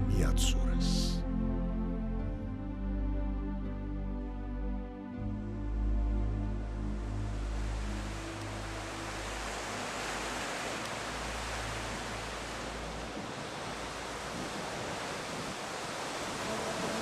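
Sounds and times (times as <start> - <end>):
low sustained music tones: 0.0 - 17.0
sea surf rushing: 6.6 - 17.0.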